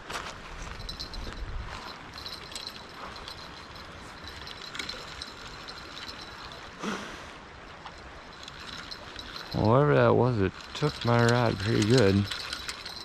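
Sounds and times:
river water flowing: 0.1s - 13.0s
faint irregular ticking: 7.8s - 13.0s.

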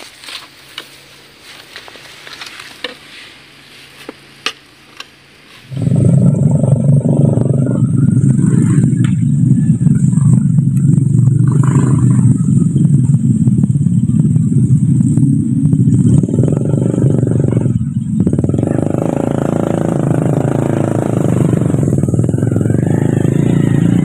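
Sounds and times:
motorcycle engine running: 5.7s - 24.0s.

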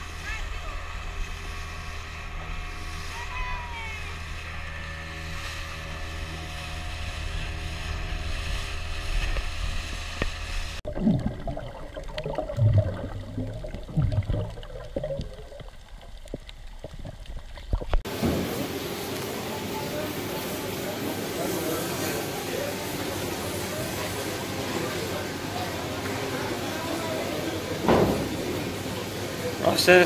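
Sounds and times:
motorboat engine running: 0.0s - 21.1s
underwater bubbling and gurgling: 8.4s - 18.1s.

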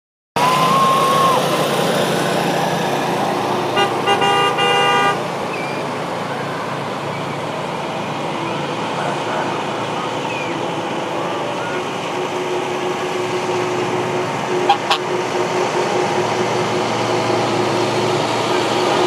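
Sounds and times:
traffic and street noise: 0.4s - 19.0s
vehicle horn honking: 3.8s - 5.2s, 14.7s - 15.0s.

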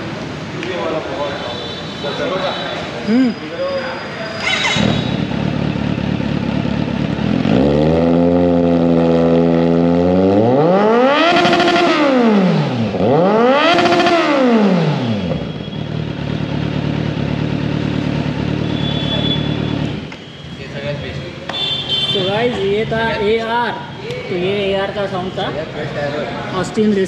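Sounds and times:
motorcycle engine idling and revving: 3.5s - 23.6s.

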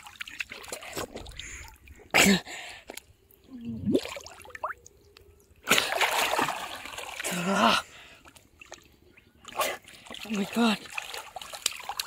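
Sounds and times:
river water splashing: 5.6s - 7.5s, 8.2s - 12.0s.

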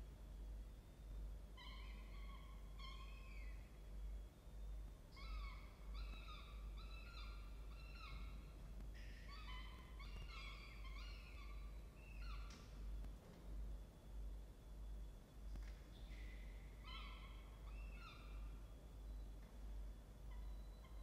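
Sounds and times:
falcon chicks begging calls: 9.3s - 12.5s.

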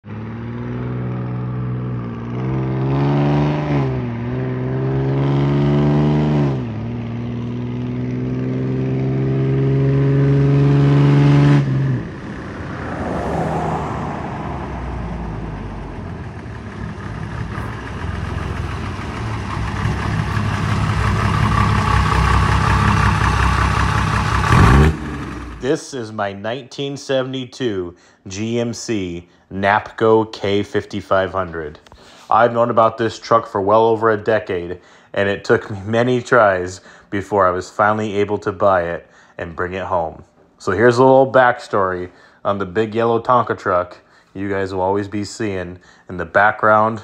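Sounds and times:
diesel truck engine accelerating: 0.0s - 25.8s.

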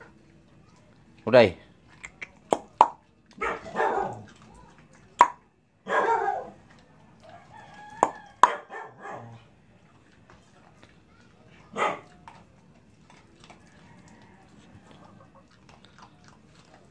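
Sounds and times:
dog chewing dry kibble: 0.0s - 5.4s, 6.5s - 8.8s, 9.4s - 16.9s
rooster crowing: 7.2s - 9.0s, 13.6s - 15.3s.

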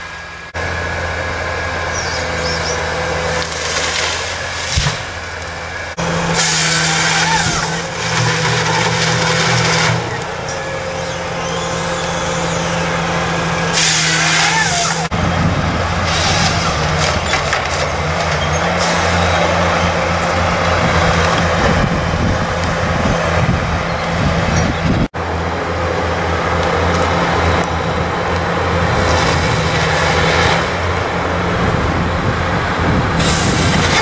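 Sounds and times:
heavy diesel engines humming: 0.0s - 34.0s.

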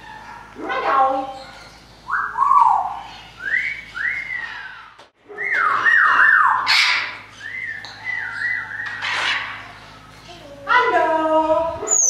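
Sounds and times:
parrot squawks: 4.0s - 10.0s.

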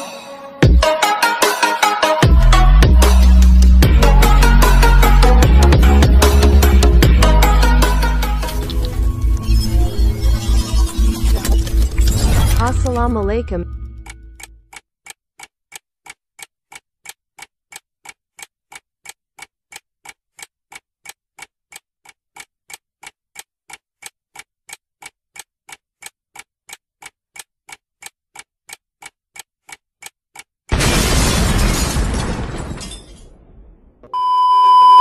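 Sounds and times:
clock ticking: 2.3s - 11.9s, 12.6s - 30.8s.

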